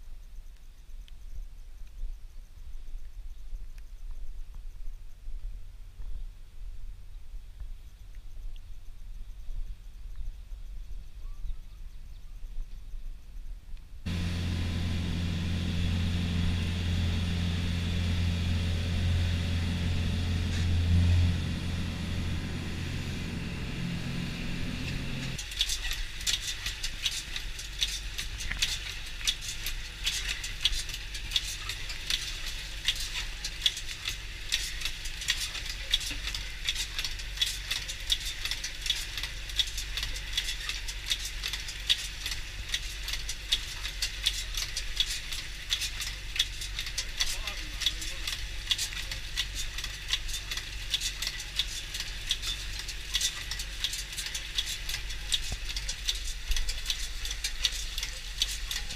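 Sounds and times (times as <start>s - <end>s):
boat engine droning: 14.1s - 25.4s.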